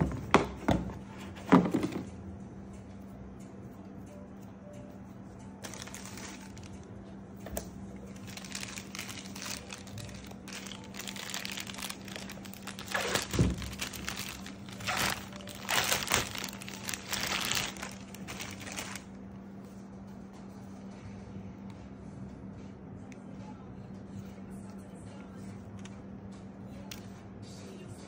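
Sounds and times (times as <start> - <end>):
plastic wrap crinkling: 5.6 - 6.9, 8.1 - 19.1.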